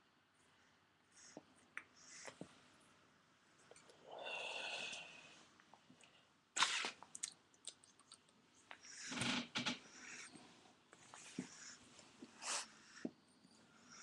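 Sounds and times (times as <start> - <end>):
breathy hiss: 3.9 - 5.5, 8.8 - 14.0.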